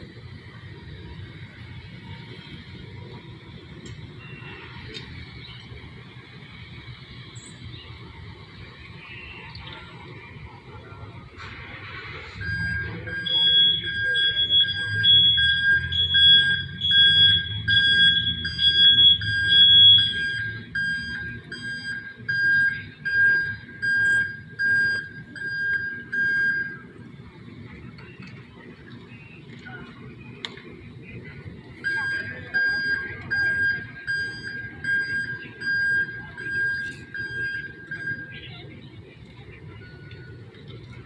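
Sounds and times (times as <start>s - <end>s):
electronic warning beeper: 11.7s - 26.9s, 31.8s - 38.5s.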